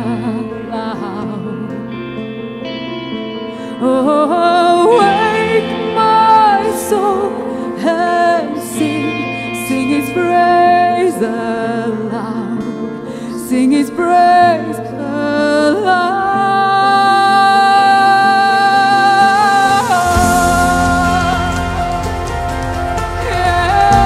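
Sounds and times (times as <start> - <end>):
woman singing into a microphone: 0.0 - 2.3, 3.5 - 24.0
band with electric guitar: 18.5 - 24.0.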